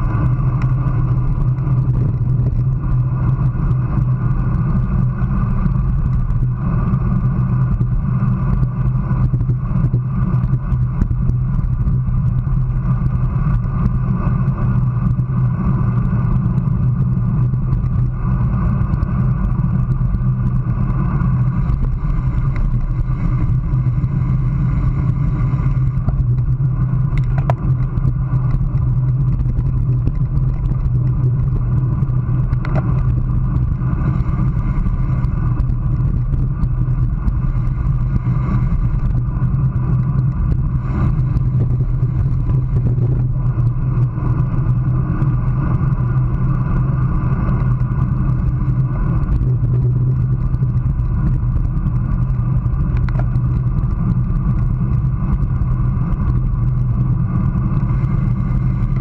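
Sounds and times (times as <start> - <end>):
tyre noise on asphalt: 0.0 - 59.0
wind rush over camera: 0.0 - 59.0
faint clicks: 52.9 - 53.3.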